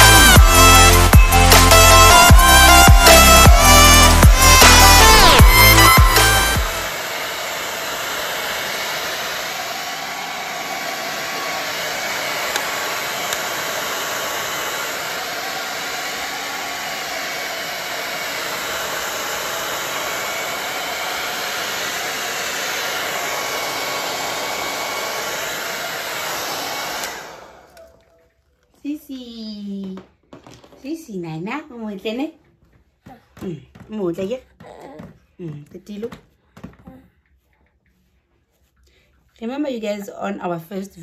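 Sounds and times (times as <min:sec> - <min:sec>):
hair dryer blowing: 0:00.0 - 0:28.1.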